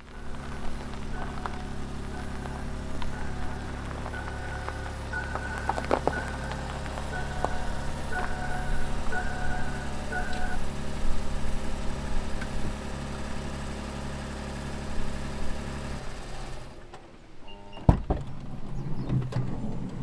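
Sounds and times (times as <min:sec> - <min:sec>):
short beeps: 0:00.0 - 0:10.8
vehicle humming: 0:00.0 - 0:20.0.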